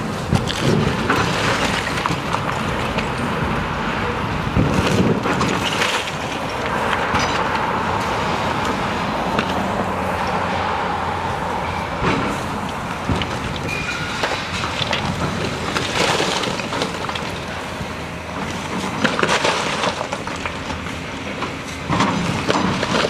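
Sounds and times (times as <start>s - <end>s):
cars passing on asphalt: 0.0s - 23.0s
brick wall being demolished: 13.0s - 17.6s, 18.7s - 20.8s
falling masonry crashes: 13.0s - 17.6s, 18.8s - 20.8s.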